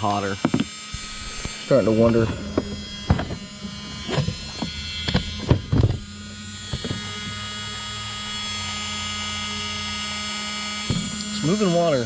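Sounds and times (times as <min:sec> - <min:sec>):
small water pump whining: 0:00.0 - 0:12.0.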